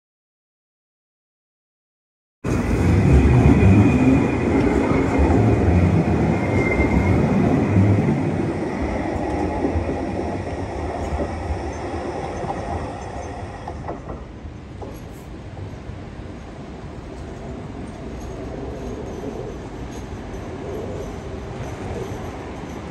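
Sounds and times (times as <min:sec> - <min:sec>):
tram rumbling on rails: 0:02.4 - 0:22.9
faint high wheel squeal: 0:06.0 - 0:08.0.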